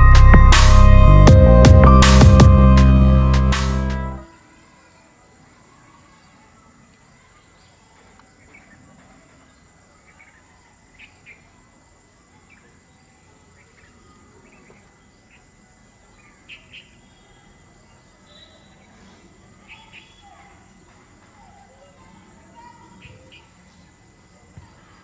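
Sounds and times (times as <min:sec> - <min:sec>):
high insect hum: 0:00.0 - 0:25.0
bird chirps: 0:16.1 - 0:19.0, 0:19.6 - 0:20.4.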